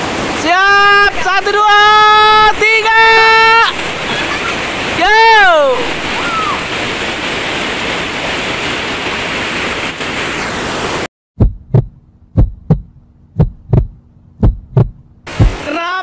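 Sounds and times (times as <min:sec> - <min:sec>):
waterfall rushing: 0:00.0 - 0:11.1, 0:15.3 - 0:16.0
heartbeat thumps: 0:11.4 - 0:15.6.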